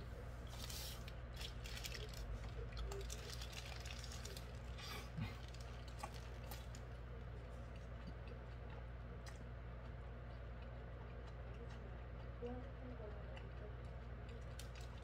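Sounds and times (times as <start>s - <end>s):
steady low hum: 0.0s - 15.0s
paper wrapper crinkling: 0.5s - 6.8s
person chewing: 0.5s - 12.4s, 13.4s - 15.0s.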